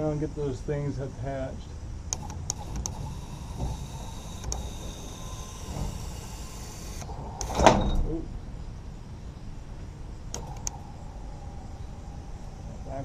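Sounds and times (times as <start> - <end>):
lift hissing: 2.2 - 8.3.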